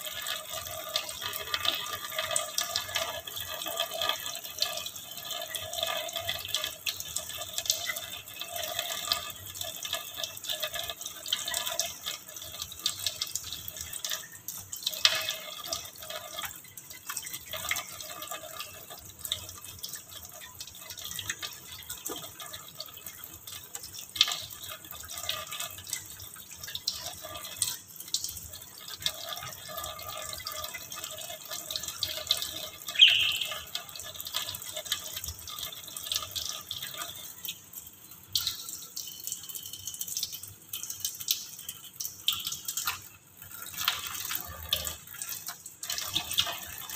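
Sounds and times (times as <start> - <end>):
tap water splashing into sink: 19.6 - 37.6.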